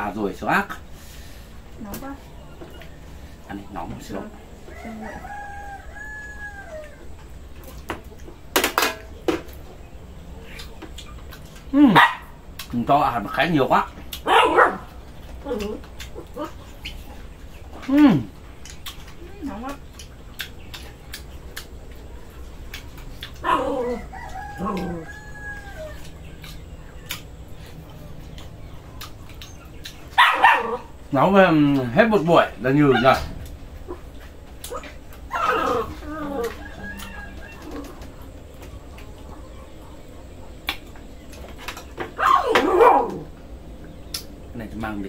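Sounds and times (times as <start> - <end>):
rooster crowing: 4.6 - 7.3, 23.4 - 26.2, 35.3 - 38.2.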